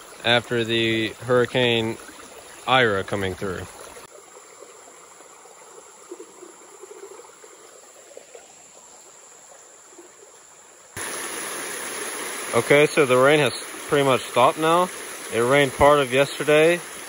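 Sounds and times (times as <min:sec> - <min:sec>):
creek water trickling over rocks: 0:00.0 - 0:17.0
small water splashes: 0:00.0 - 0:17.0
high insect buzz: 0:03.4 - 0:17.0
water pouring over a dam: 0:11.0 - 0:17.0.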